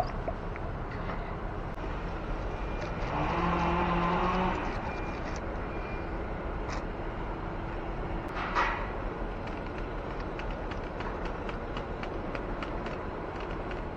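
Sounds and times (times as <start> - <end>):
hum: 0.0 - 2.0
outdoor background noise: 0.0 - 13.9.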